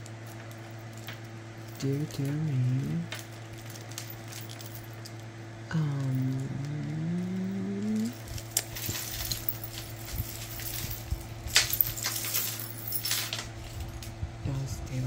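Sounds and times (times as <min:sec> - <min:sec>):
metal jewelry clinking: 0:00.0 - 0:14.2
woman humming: 0:05.6 - 0:08.5.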